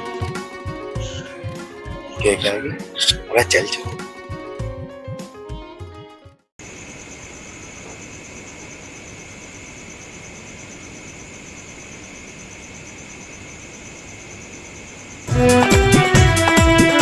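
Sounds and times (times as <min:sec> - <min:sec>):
loud music: 0:00.0 - 0:05.2, 0:15.3 - 0:17.0
crickets chirring: 0:06.6 - 0:15.3.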